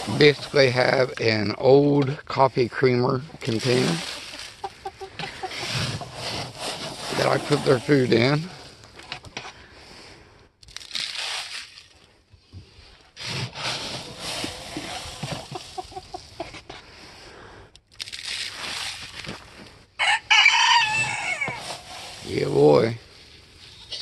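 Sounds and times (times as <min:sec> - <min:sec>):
dry feed rustling and pouring: 0:00.0 - 0:01.5, 0:02.8 - 0:08.8, 0:12.8 - 0:16.5, 0:18.1 - 0:23.8
plastic scoop digging in feed: 0:00.0 - 0:01.5, 0:03.3 - 0:08.9, 0:10.7 - 0:11.9, 0:12.9 - 0:16.8, 0:18.0 - 0:19.7, 0:20.5 - 0:23.0.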